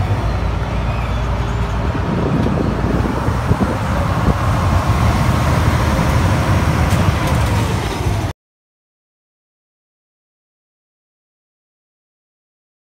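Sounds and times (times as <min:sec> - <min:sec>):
crowd noise on open deck: 0:00.0 - 0:08.3
ferry engine running: 0:00.0 - 0:08.3.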